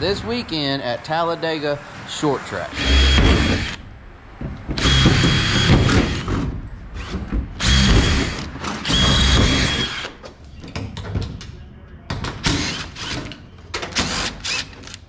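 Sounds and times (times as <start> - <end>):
cordless drill whining: 2.7 - 3.8, 4.8 - 6.3, 7.0 - 10.1.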